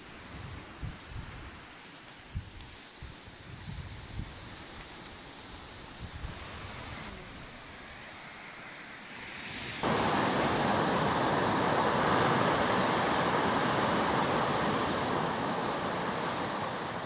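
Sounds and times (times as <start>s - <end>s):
surf washing on beach: 9.4s - 17.0s.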